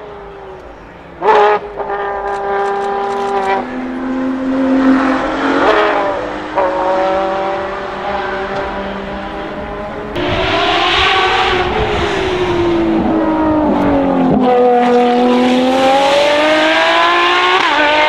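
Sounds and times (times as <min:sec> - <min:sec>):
car engine accelerating hard: 0:00.0 - 0:18.0
sharp bang: 0:10.2 - 0:14.4.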